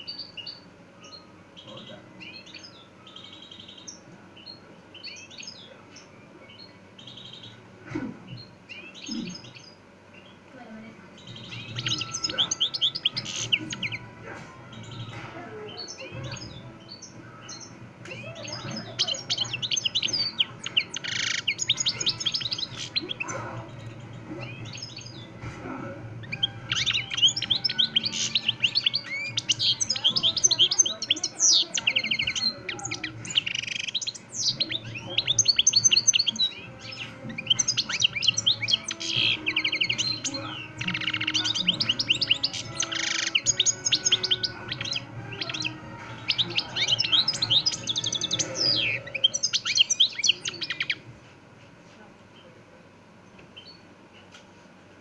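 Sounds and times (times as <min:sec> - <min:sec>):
finch singing high twittering: 0:00.0 - 0:51.1.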